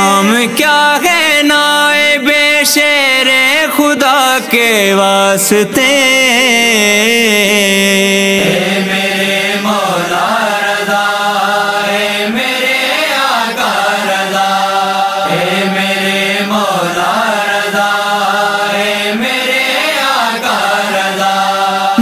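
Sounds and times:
wordless vocal chanting: 0:00.0 - 0:22.0
low drone: 0:08.3 - 0:10.3.

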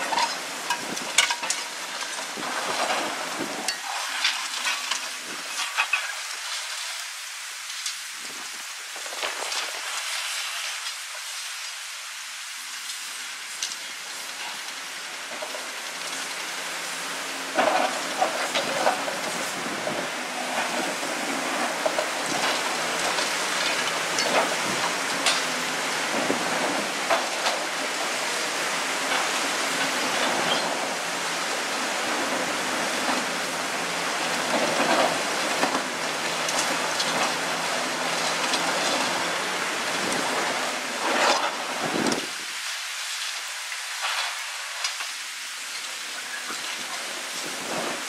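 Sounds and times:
excavator diesel engine under load: 0:17.0 - 0:42.3.

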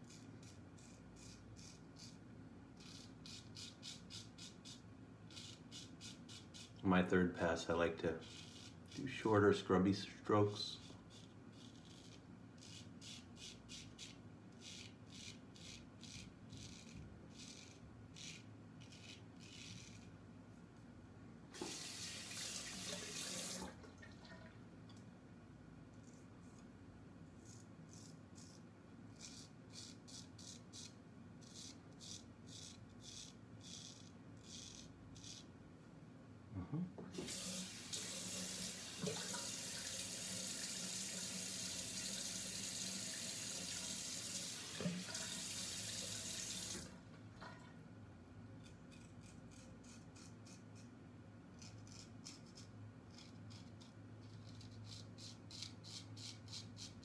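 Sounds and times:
razor scraping stubble: 0:00.0 - 0:02.2, 0:02.8 - 0:20.1, 0:27.4 - 0:35.5, 0:48.6 - 0:50.9, 0:51.6 - 0:57.0
sink faucet running: 0:21.6 - 0:24.4, 0:37.1 - 0:46.9.

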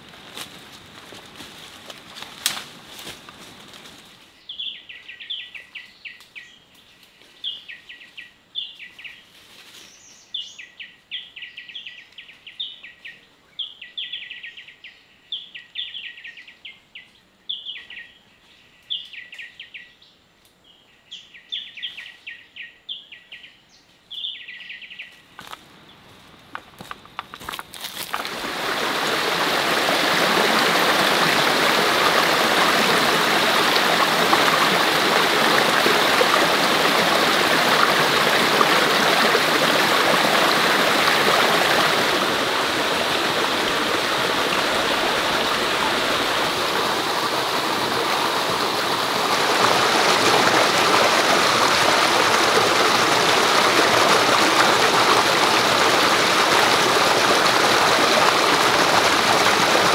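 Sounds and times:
stream water flowing: 0:26.4 - 0:59.9.

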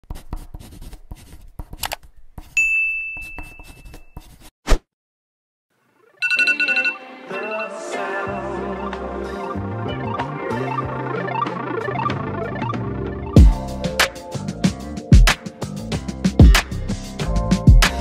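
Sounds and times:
bright chime: 0:06.2 - 0:07.8
phone alarm ringtone beeps: 0:06.2 - 0:07.9.

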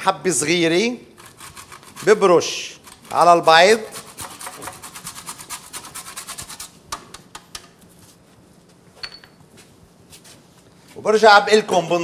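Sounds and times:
nutmeg rasping on metal grater: 0:01.2 - 0:06.7.

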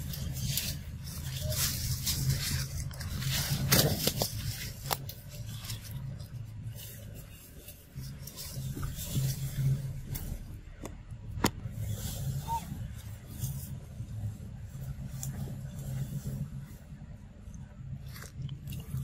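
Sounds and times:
twigs snapping: 0:00.0 - 0:06.9
dry leaves rustling underfoot: 0:00.0 - 0:10.8, 0:11.6 - 0:17.0
low hum: 0:00.0 - 0:19.0.

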